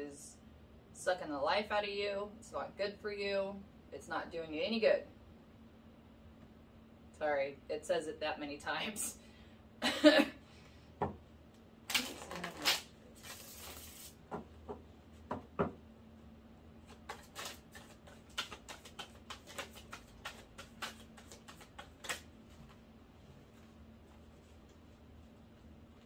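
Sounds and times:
cards being shuffled: 11.9 - 14.2, 16.8 - 22.8.

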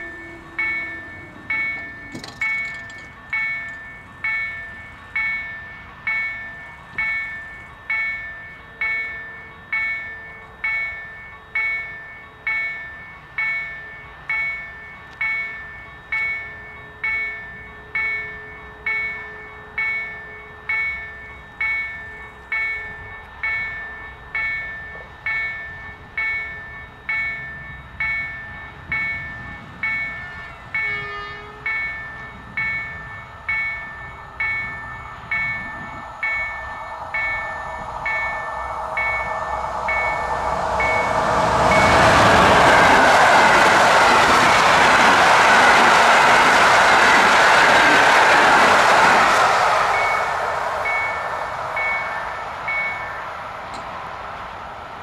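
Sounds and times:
distant train horn: 0.0 - 2.6, 30.1 - 31.9, 35.0 - 46.5
train wheels rushing on rails: 0.0 - 19.1, 19.8 - 55.0
level crossing warning bell: 0.0 - 54.7.

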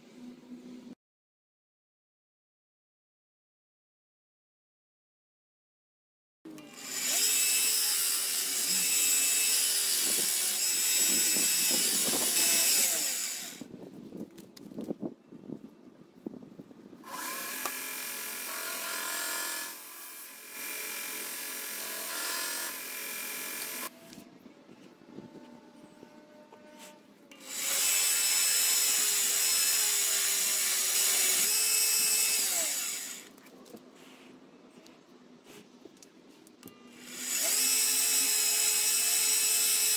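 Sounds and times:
belt grinder humming: 6.6 - 13.6, 17.1 - 24.0, 27.3 - 33.3.

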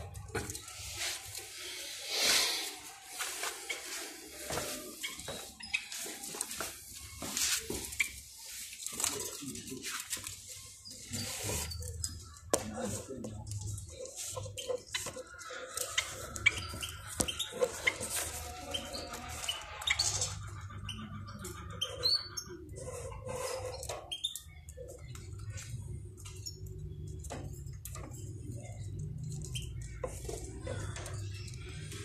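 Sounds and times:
sparrows chirping and clicking: 0.0 - 32.0.

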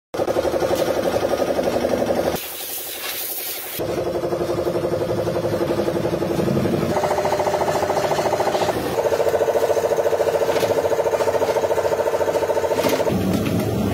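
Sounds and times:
hose spraying water on metal: 2.4 - 3.8
factory machinery drone: 3.8 - 13.9.

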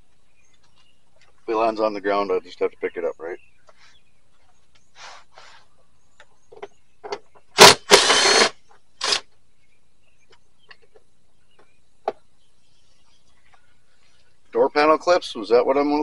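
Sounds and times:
harsh rattling bursts: 7.6 - 9.2.

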